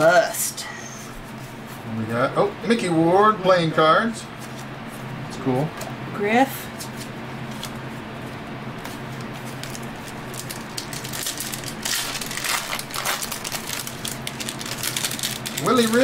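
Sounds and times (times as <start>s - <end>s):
low electrical hum: 0.0s - 16.0s
foil wrapper tearing and crinkling: 9.0s - 16.0s.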